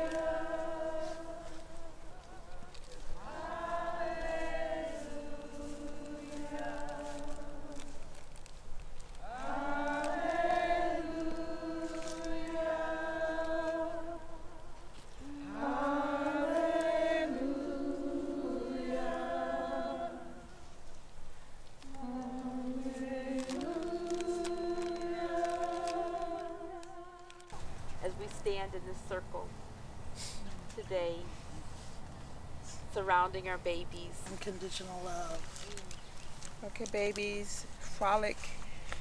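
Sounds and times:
women singing wordless notes: 0.0s - 8.2s, 9.2s - 21.0s, 21.8s - 29.5s.

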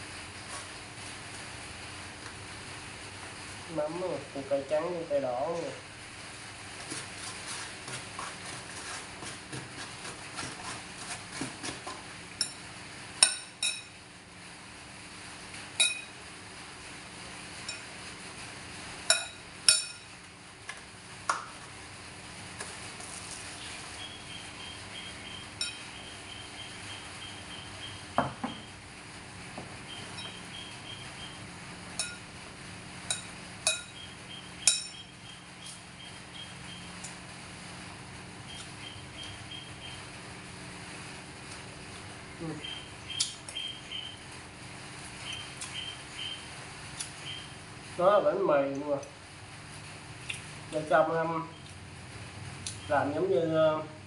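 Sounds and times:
sharp ringing spoon clinks: 15.8s - 16.1s, 32.0s - 32.2s, 33.1s - 34.0s, 34.7s - 35.0s.

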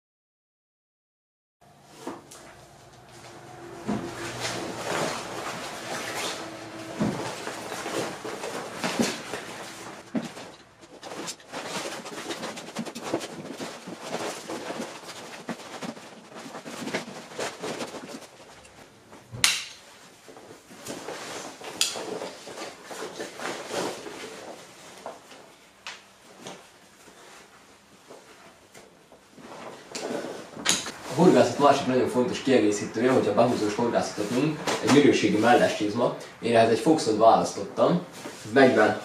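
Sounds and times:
waders rustling and flapping: 4.0s - 18.6s.

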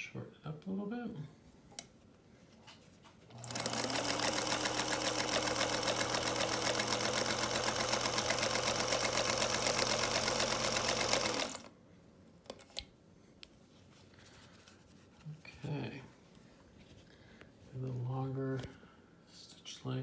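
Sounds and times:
sewing machine stitching: 3.3s - 11.7s.

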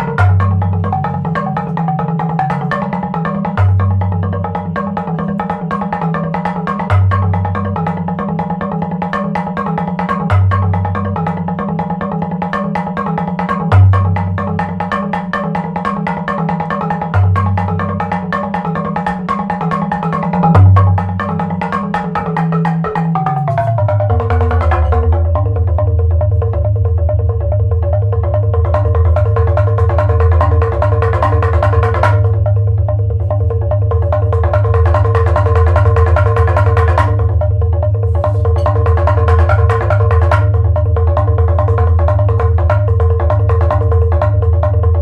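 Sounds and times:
mallet percussion strikes: 0.0s - 45.0s
steady low drone: 23.0s - 45.0s.

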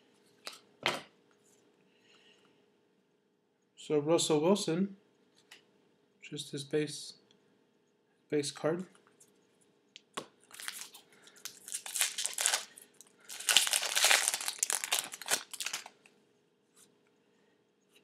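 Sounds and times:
trading cards rustling: 10.5s - 16.0s.

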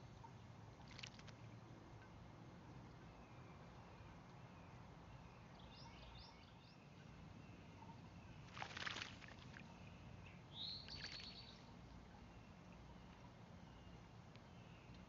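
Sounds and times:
bird splashing in water: 0.8s - 1.4s, 8.4s - 9.7s, 10.9s - 11.4s
faint bird chirps: 2.9s - 15.0s.

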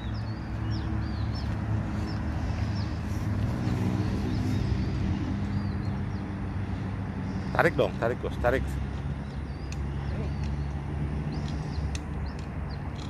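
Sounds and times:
low rumble of motor traffic: 0.0s - 13.0s
small birds chirping: 0.0s - 13.0s.

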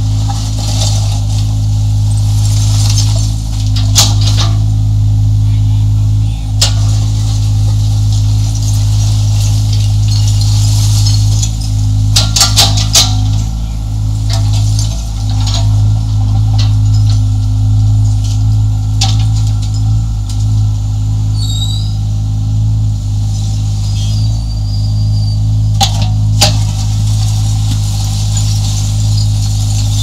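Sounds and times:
concrete rubble clinking: 0.0s - 4.8s, 6.4s - 20.7s, 25.8s - 30.0s
excavator diesel engine running: 0.0s - 30.0s.

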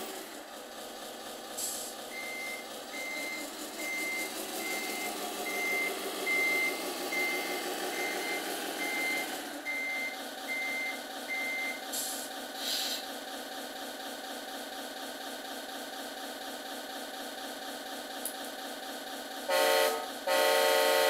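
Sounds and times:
simulated engine running: 0.0s - 21.0s
reversing beeper short beeps: 2.1s - 11.8s.

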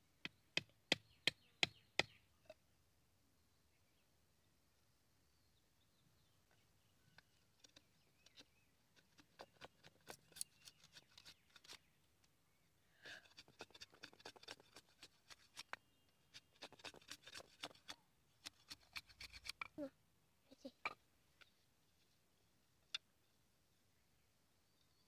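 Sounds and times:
blade shaving bamboo: 7.6s - 11.9s, 13.1s - 19.6s.

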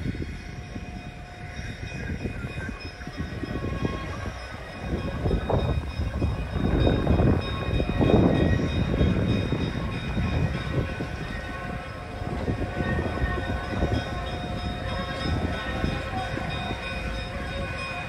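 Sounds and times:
diesel locomotive rumbling: 0.0s - 18.0s.

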